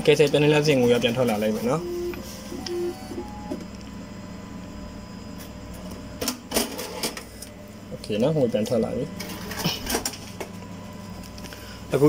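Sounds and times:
banknote machine mechanism running: 0:00.0 - 0:03.7.

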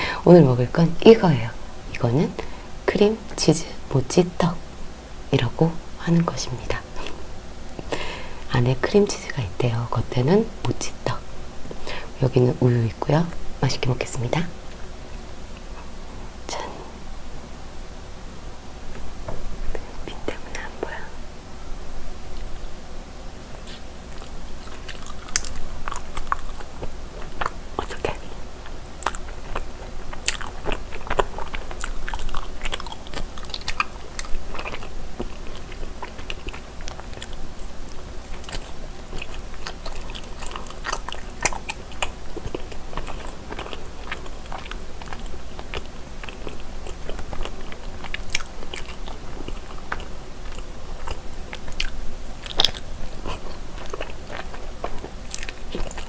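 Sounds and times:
chewing soft rice cakes: 0:23.4 - 0:56.0.

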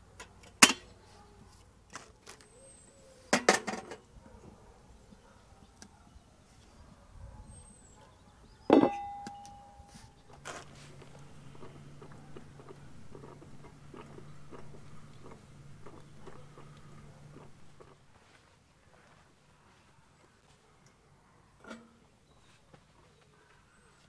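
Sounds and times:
sharp metal clink: 0:08.7 - 0:09.9
low steady hum: 0:08.9 - 0:18.1
coffee percolator popping and gurgling: 0:10.4 - 0:18.0.

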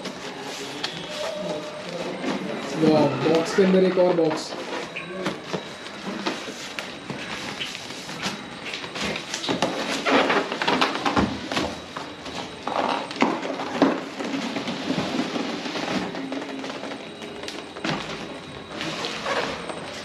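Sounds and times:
cardboard rustling and scraping: 0:00.0 - 0:02.9.

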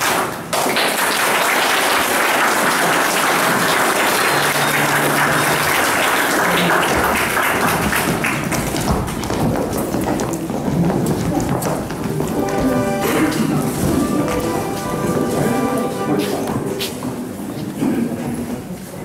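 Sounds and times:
audience applauding: 0:00.0 - 0:09.3
dance music: 0:11.8 - 0:16.9.

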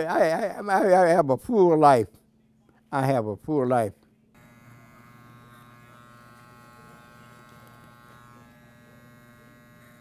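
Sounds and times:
electric hair clippers buzzing: 0:04.4 - 0:10.0.

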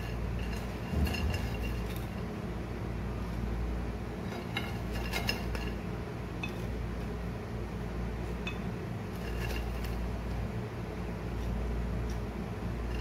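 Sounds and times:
low hum: 0:00.0 - 0:04.2.

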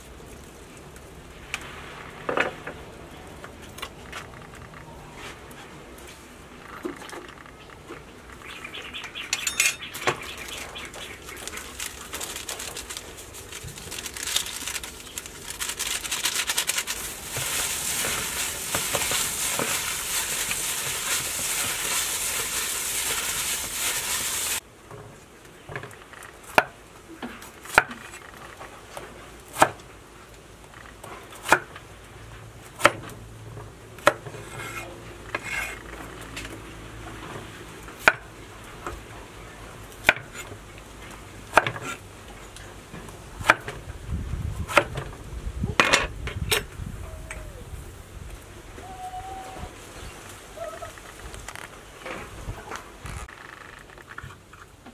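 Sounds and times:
plastic bag rustling: 0:10.2 - 0:24.6
meat squishing: 0:10.4 - 0:24.6.

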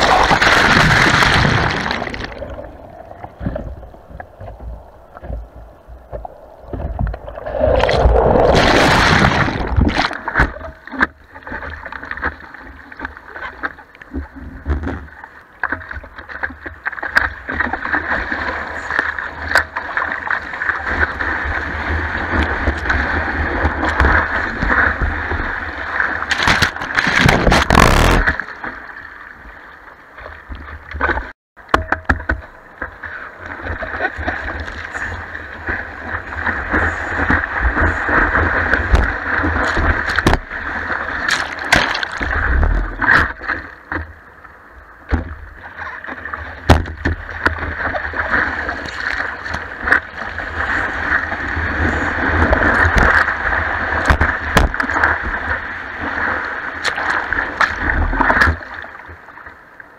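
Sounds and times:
surf rushing and splashing: 0:00.0 - 0:05.4, 0:06.1 - 0:13.9, 0:15.9 - 0:29.2, 0:32.3 - 0:59.9.

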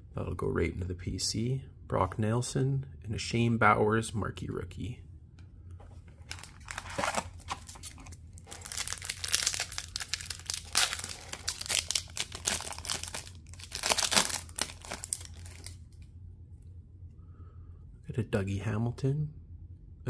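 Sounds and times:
foil wrapper crinkling and tearing: 0:06.3 - 0:15.8.

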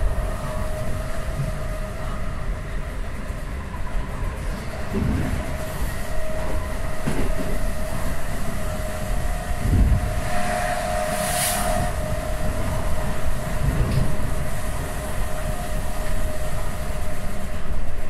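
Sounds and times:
wheels rumbling on rail: 0:00.0 - 0:18.0
thin steady whine: 0:05.7 - 0:18.0.

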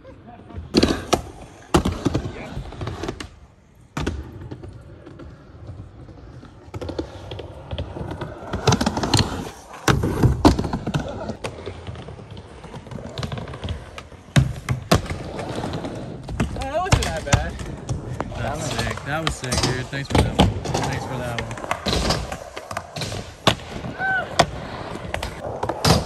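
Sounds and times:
skateboard wheels rolling: 0:00.0 - 0:26.0
skateboard clacks and thuds: 0:00.7 - 0:26.0.

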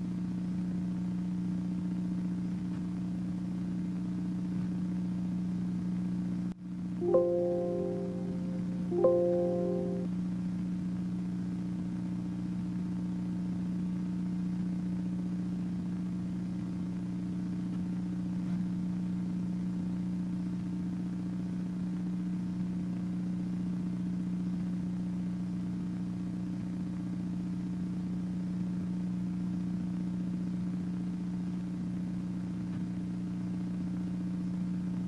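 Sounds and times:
low electrical hum: 0:00.0 - 0:10.1.

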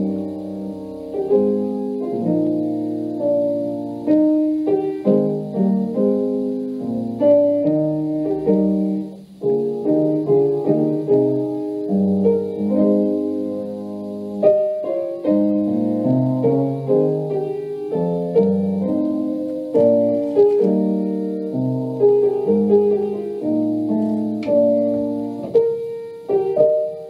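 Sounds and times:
slow piano chords: 0:00.0 - 0:27.0.

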